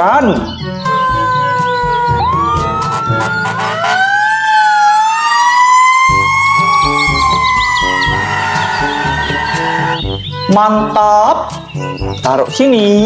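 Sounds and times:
background music with steady beat: 0.0 - 4.9, 5.6 - 13.0
fire engine siren wailing: 0.9 - 10.2.

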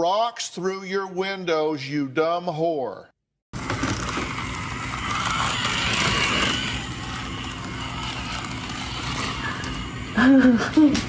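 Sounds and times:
toy car motor whirring: 3.6 - 10.9.

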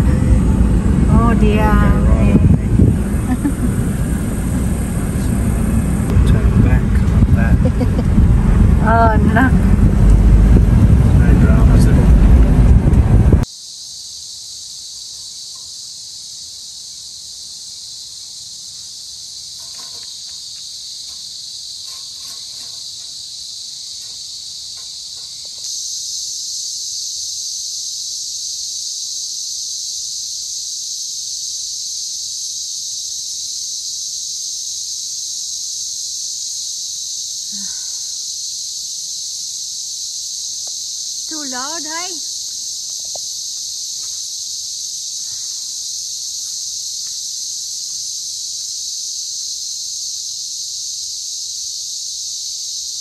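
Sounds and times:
cicada chorus drone: 0.0 - 53.0.

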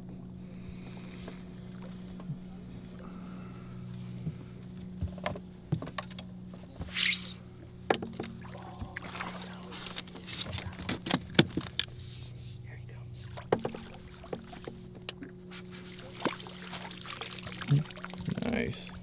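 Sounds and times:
boat motor humming: 0.0 - 19.0
sharp knocks on boat: 7.8 - 9.2, 10.4 - 11.8, 13.3 - 15.3.

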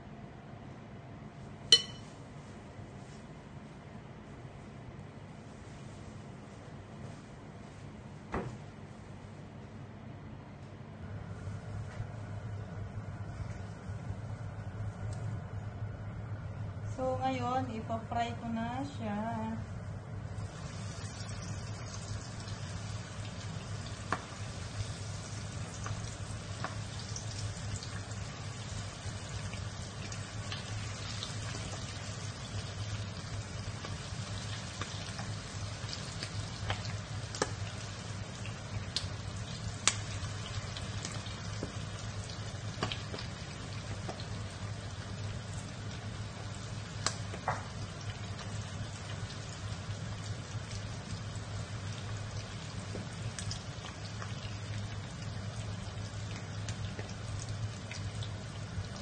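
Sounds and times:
oil sizzling: 1.7 - 2.1, 20.2 - 59.0
oil popping and crackling: 20.4 - 59.0.

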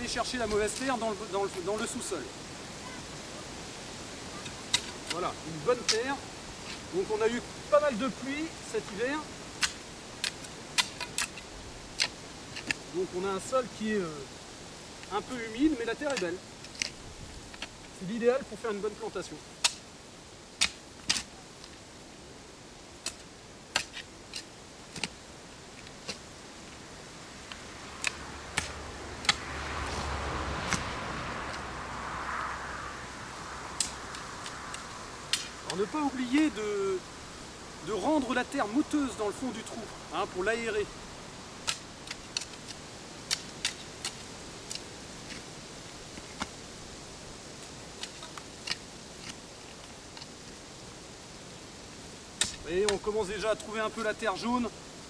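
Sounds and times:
spade scraping soil: 0.0 - 2.1, 4.3 - 13.9, 23.0 - 31.7, 33.8 - 40.9, 41.6 - 50.6, 52.4 - 54.6
faint steady hiss: 0.0 - 55.0
spade digging into clay soil: 4.5 - 6.9, 9.6 - 12.9, 23.0 - 25.2, 27.4 - 30.1, 33.8 - 36.7, 52.4 - 53.0.

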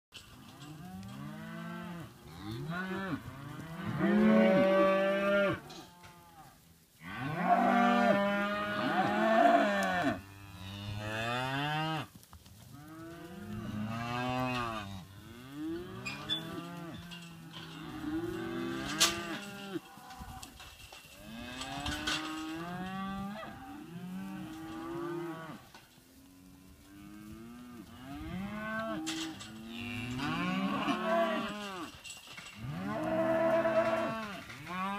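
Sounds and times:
cattle mooing: 0.6 - 6.4, 7.0 - 12.1, 27.0 - 31.9, 32.6 - 34.9.

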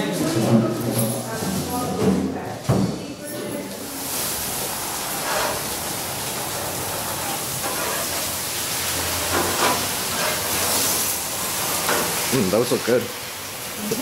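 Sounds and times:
meat sizzling on a grill: 3.7 - 14.0.

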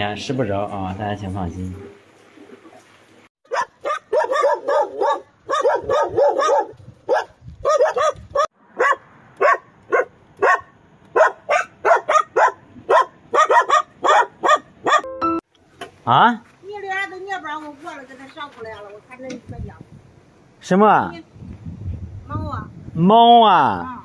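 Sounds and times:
dog barking: 3.5 - 15.1.

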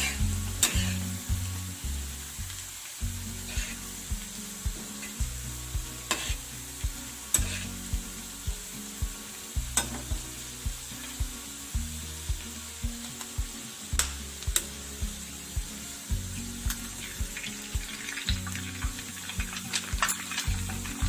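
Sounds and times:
background music with beat: 0.0 - 21.0
vegetables sizzling in oil: 0.0 - 21.0
spatula scraping and knocking pan: 6.1 - 6.4.

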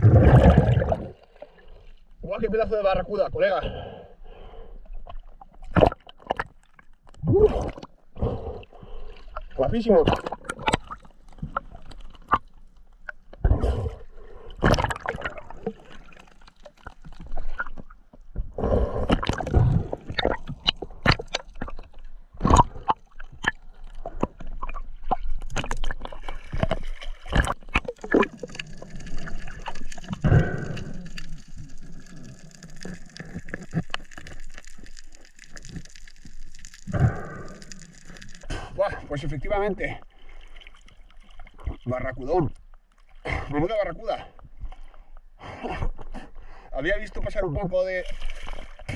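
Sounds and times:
sea water sloshing and splashing: 0.0 - 2.2, 8.8 - 38.8, 40.0 - 42.1, 47.9 - 48.9.

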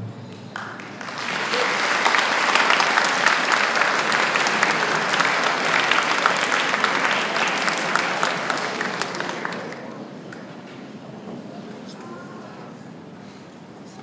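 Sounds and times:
audience applause: 0.3 - 10.6.

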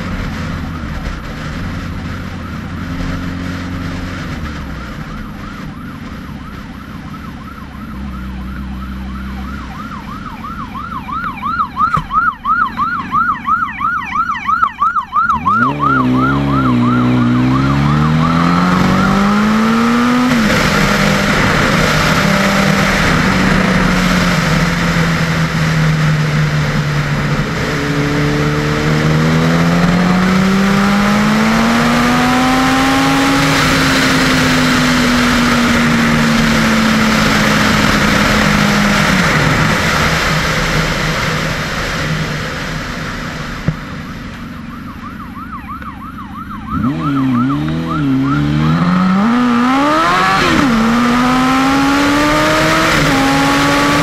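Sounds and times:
motorcycle engine revving: 0.0 - 54.0
police siren yelping: 2.0 - 26.6, 44.0 - 54.0.

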